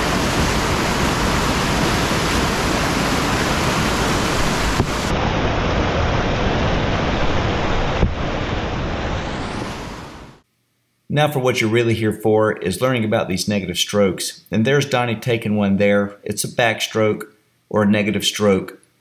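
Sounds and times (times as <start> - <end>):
whitewater rushing: 0.0 - 10.4.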